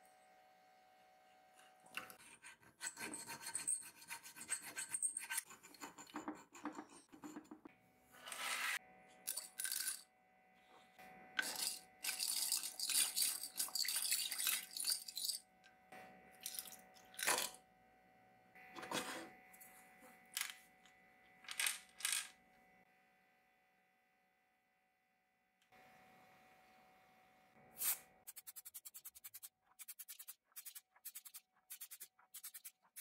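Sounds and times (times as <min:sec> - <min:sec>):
hand file rasping on metal: 0:02.2 - 0:07.6
metal parts rattling in glass jar: 0:09.3 - 0:10.0, 0:11.4 - 0:15.4.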